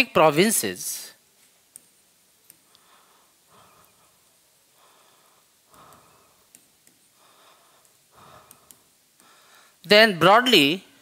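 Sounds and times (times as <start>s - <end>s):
faint breaths: 2.5s - 9.9s.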